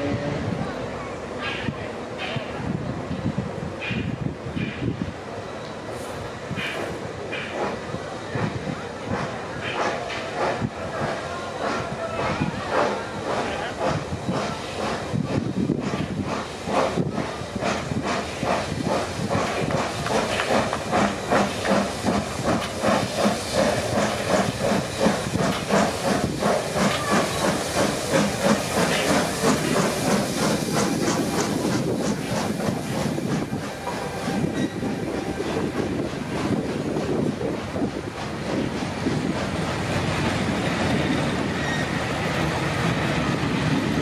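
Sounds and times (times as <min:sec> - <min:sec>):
steam hiss: 0:01.4 - 0:44.0
steam locomotive exhaust chuffing: 0:05.8 - 0:44.0.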